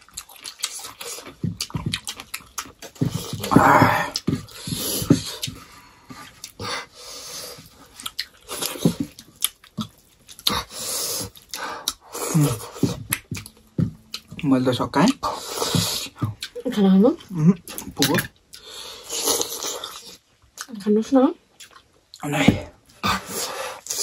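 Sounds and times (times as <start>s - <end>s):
wet chewing: 0.0s - 20.7s, 21.5s - 22.2s
slurping: 18.7s - 20.2s.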